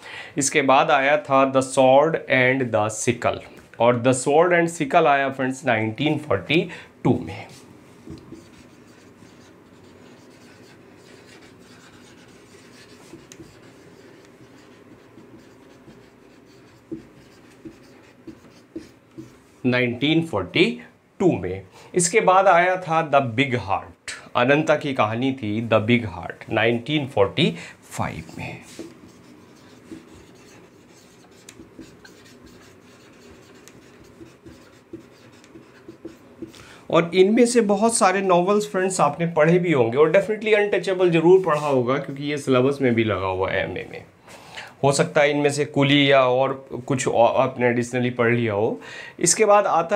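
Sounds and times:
marker scratching on whiteboard: 0:07.3 - 0:19.6, 0:28.0 - 0:36.6.

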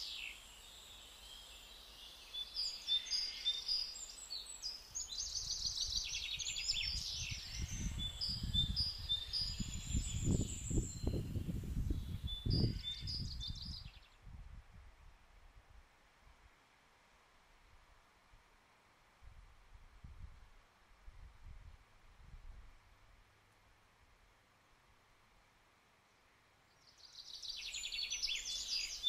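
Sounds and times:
songbirds chirping: 0:00.0 - 0:14.2, 0:25.0 - 0:29.0.

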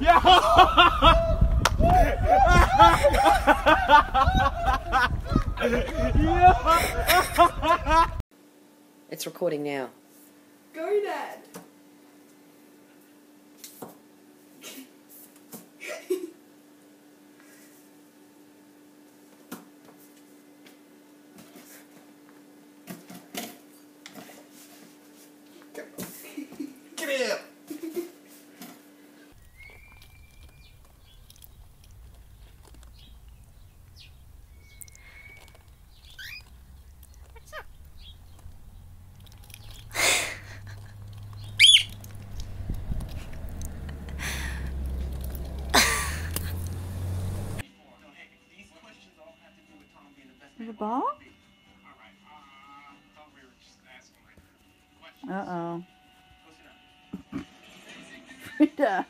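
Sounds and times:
steady low hum: 0:29.0 - 0:47.6
parrot whistled chirp: 0:29.5 - 0:30.7, 0:34.5 - 0:36.4, 0:41.5 - 0:42.0
parrot squawking: 0:34.0 - 0:38.3, 0:41.4 - 0:42.1.

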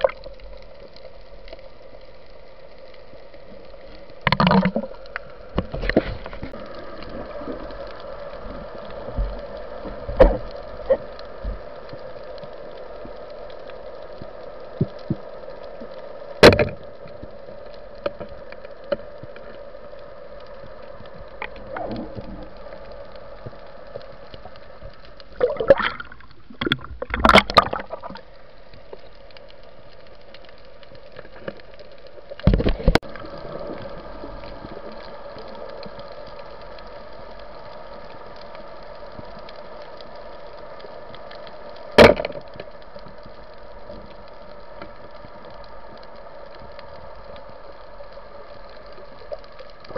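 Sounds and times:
underwater hum: 0:00.0 - 0:49.9.

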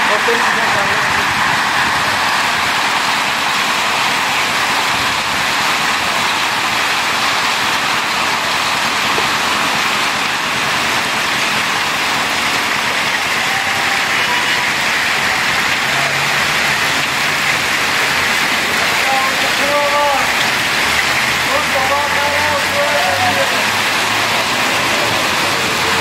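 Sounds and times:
heavy rain and hail on pavement: 0:00.0 - 0:26.0.

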